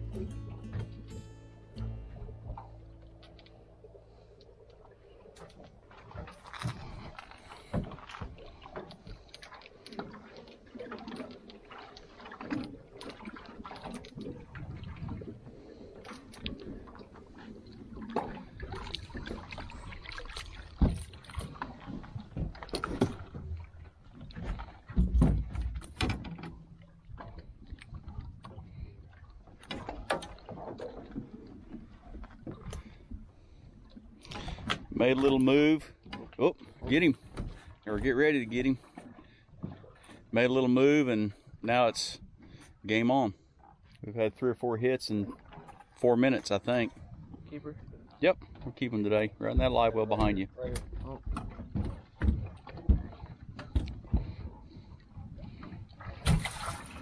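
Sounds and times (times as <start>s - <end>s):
waves lapping against boat hull: 0.0s - 57.0s
light knocks on hull: 49.5s - 54.6s.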